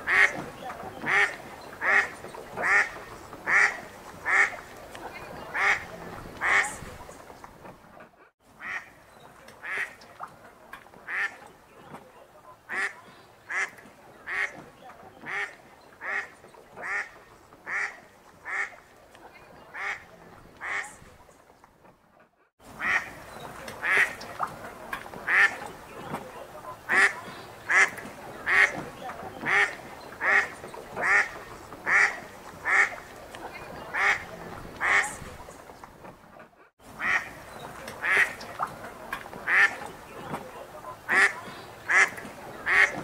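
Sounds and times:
duck quacking: 0:00.0 - 0:04.7, 0:05.3 - 0:06.9, 0:08.6 - 0:09.0, 0:09.6 - 0:10.0, 0:11.1 - 0:11.5, 0:12.7 - 0:14.6, 0:15.2 - 0:18.8, 0:19.7 - 0:21.0, 0:22.8 - 0:23.2, 0:23.8 - 0:24.5, 0:25.2 - 0:35.4, 0:37.0 - 0:37.4, 0:38.0 - 0:38.8, 0:39.4 - 0:43.0.

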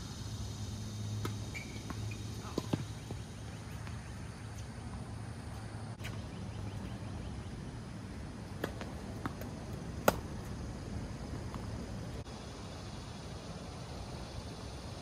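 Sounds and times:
steady low background hum: 0:00.0 - 0:15.0
tennis ball hit and bouncing: 0:01.2 - 0:04.0, 0:08.5 - 0:10.6.

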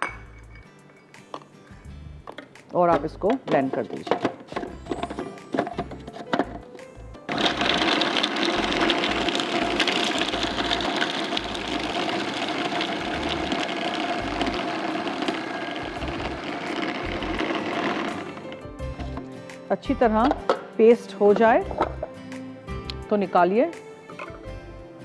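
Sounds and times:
blender motor grinding: 0:07.3 - 0:18.7.

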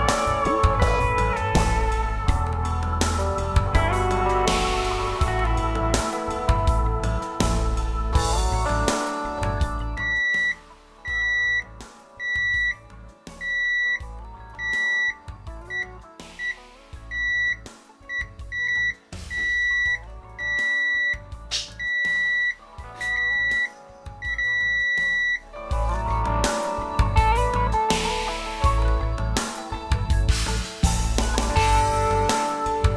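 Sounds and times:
background music: 0:00.0 - 0:32.9
high multimeter beeps: 0:10.0 - 0:12.8, 0:13.4 - 0:14.0, 0:14.6 - 0:25.4.

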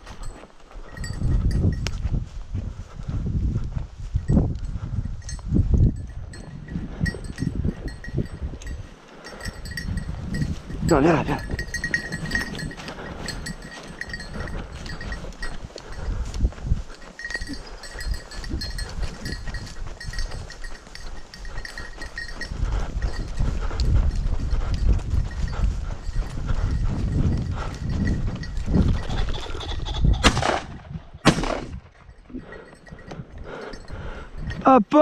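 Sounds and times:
legs rustling through dry grass: 0:00.0 - 0:34.5
shotgun shots with echo: 0:30.2 - 0:31.8.

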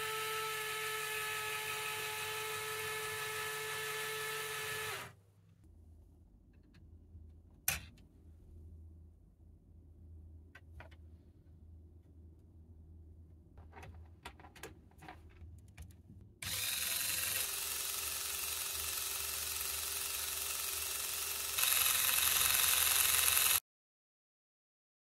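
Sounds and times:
motor whine winding string: 0:00.0 - 0:05.1, 0:16.4 - 0:23.6.

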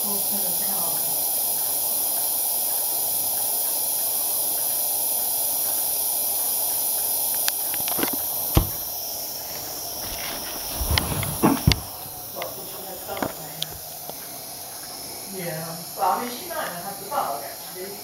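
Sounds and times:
pressure lamp hissing: 0:00.0 - 0:18.0
light knocks: 0:08.0 - 0:08.9.

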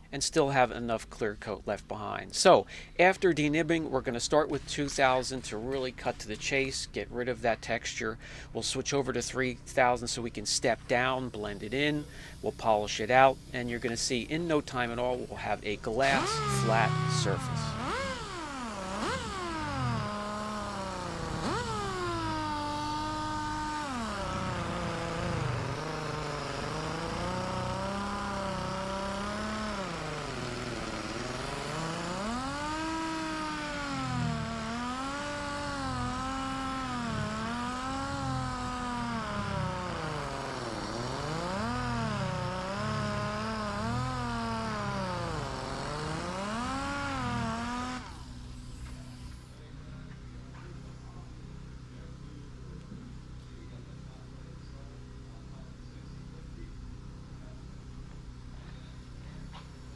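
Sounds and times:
palm sander motor whining: 0:10.1 - 0:52.1.

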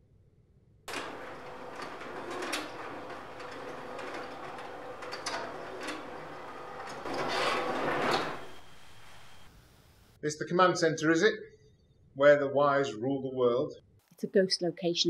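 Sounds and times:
metal roller shutter rattling: 0:00.9 - 0:09.5.

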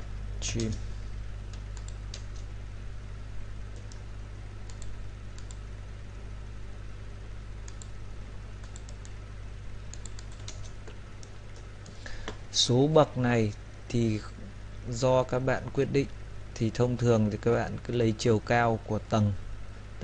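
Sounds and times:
low electrical hum: 0:00.0 - 0:20.0
mouse and keyboard clicks: 0:09.9 - 0:12.0.

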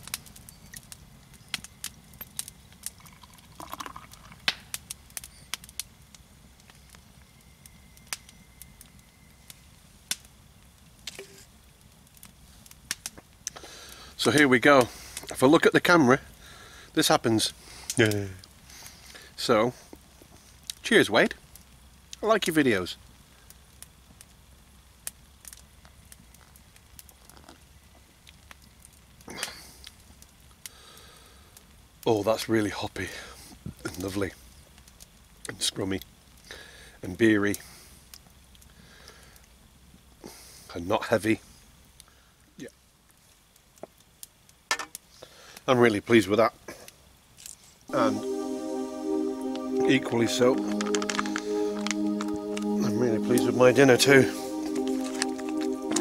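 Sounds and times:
beer splashing and fizzing: 0:02.9 - 0:04.6
breathy exhale: 0:13.6 - 0:14.2, 0:16.4 - 0:16.9, 0:36.5 - 0:37.0.

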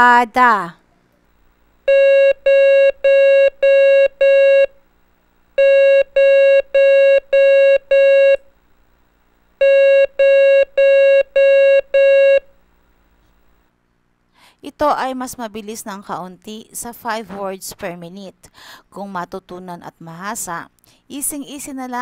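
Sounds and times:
morse code beeps: 0:09.6 - 0:12.4.

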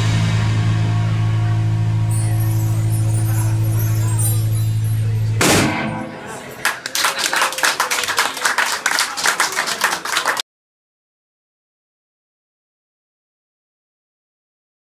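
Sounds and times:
drum and cymbal crash: 0:00.0 - 0:06.3
bass and electric guitar chord: 0:00.0 - 0:06.4
voices: 0:02.1 - 0:10.4
audience clapping: 0:06.3 - 0:10.4.

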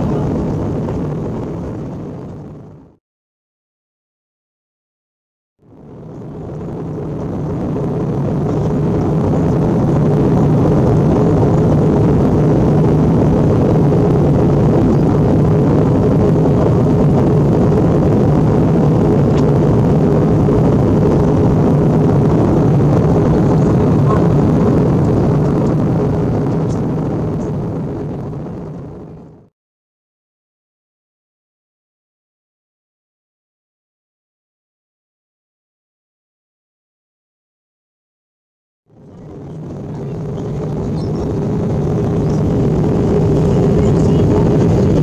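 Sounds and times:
constant low hum: 0:00.0 - 0:02.9, 0:05.6 - 0:29.5, 0:38.9 - 0:45.0
airliner cabin engine rumble: 0:00.0 - 0:03.0, 0:05.6 - 0:29.5, 0:38.9 - 0:45.0.

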